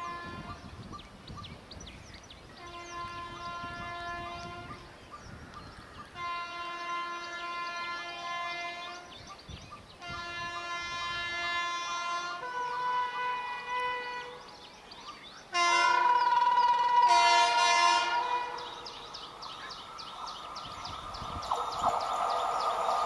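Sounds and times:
locomotive air horn blasts: 0.0s - 0.6s, 2.6s - 4.8s, 6.2s - 9.1s, 10.0s - 14.5s, 15.5s - 19.0s
train running noise: 15.5s - 23.0s.

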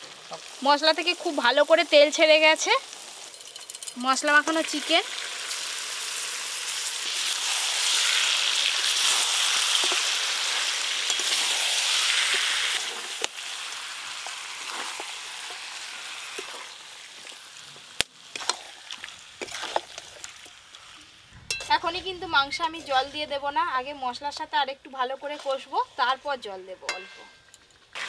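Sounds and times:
chicken sizzling in hot oil: 0.0s - 21.5s, 27.8s - 28.0s
metal spatula scraping pan: 21.4s - 23.7s, 25.2s - 26.2s.

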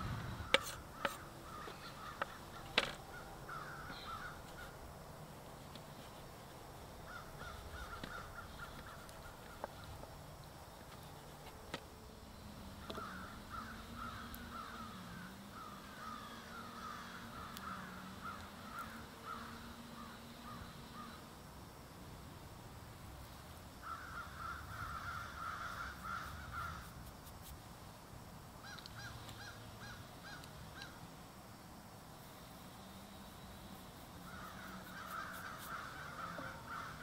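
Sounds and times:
birds calling: 0.0s - 6.2s, 7.0s - 10.2s, 12.7s - 21.2s, 28.6s - 31.0s, 34.2s - 37.0s
faint steady hum: 0.0s - 37.0s.

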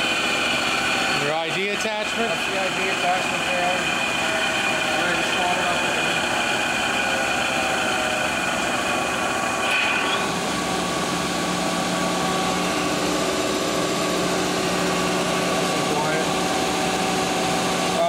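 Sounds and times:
grinder machine hum: 0.0s - 18.0s
grinder whining: 0.0s - 18.0s.

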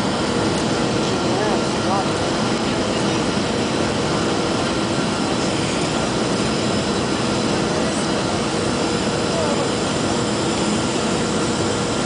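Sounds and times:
jet engine roar in cabin: 0.0s - 12.0s.

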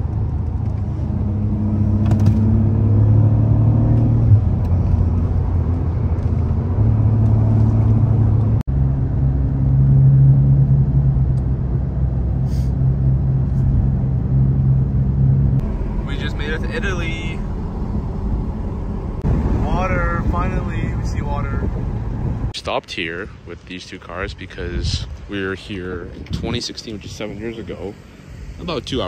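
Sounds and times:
car engine while driving: 0.0s - 22.6s.

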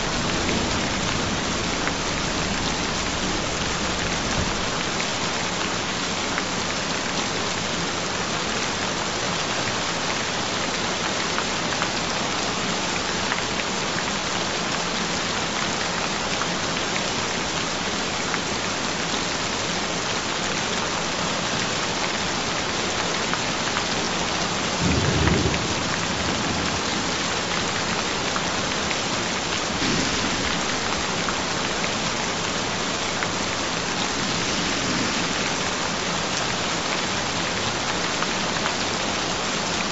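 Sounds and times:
thunder rumbling: 0.0s - 5.3s, 24.8s - 27.2s, 29.2s - 31.7s, 33.7s - 36.3s
heavy rain: 0.0s - 39.9s.

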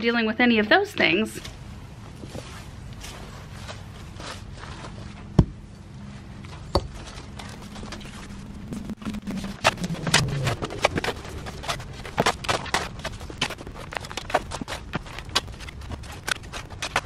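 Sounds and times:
shovel digging gravelly soil: 9.6s - 17.0s
footsteps on gravel: 9.8s - 17.0s.

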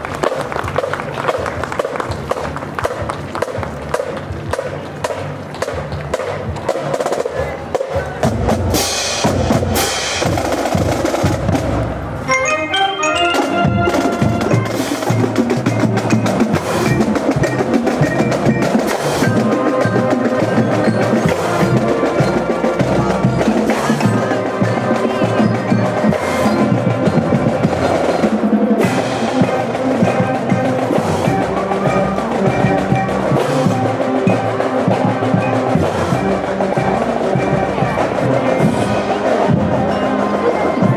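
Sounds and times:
steady drum beat: 0.7s - 12.2s, 13.3s - 40.9s
woodwinds playing a tune: 12.2s - 40.9s.

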